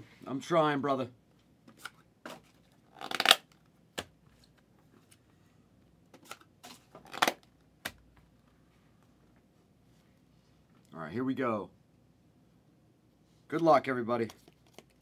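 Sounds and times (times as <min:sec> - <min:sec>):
card packaging crinkling and tearing: 0:02.6 - 0:03.6, 0:06.3 - 0:07.5.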